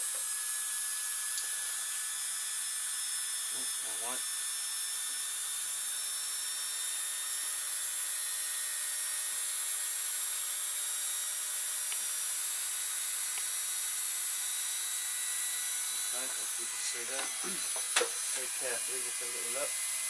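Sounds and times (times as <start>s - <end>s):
rotary tool cutting plastic: 0.0s - 20.0s.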